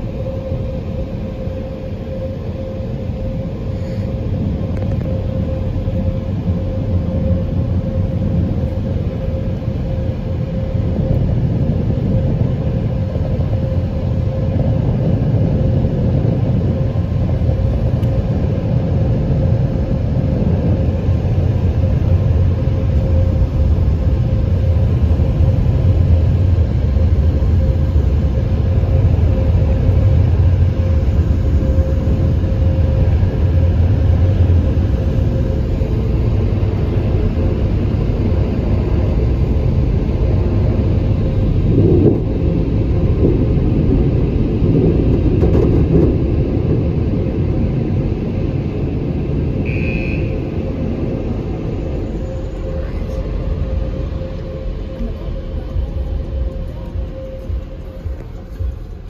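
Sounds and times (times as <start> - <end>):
car wash dryer blowers: 17.5 - 59.0.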